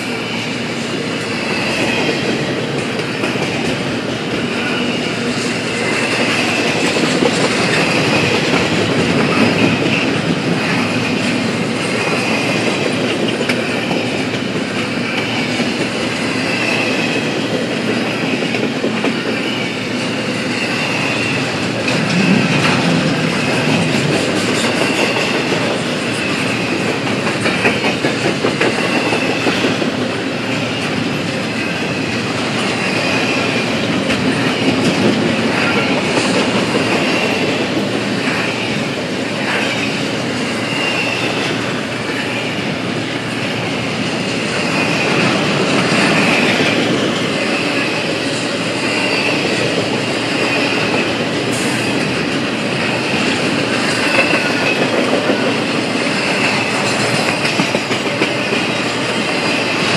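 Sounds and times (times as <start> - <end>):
steel wheels rumbling on rails: 0.0 - 59.9.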